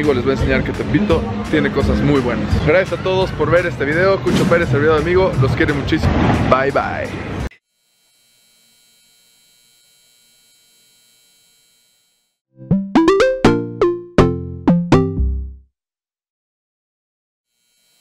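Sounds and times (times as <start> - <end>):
synthesizer logo jingle: 12.6 - 15.6.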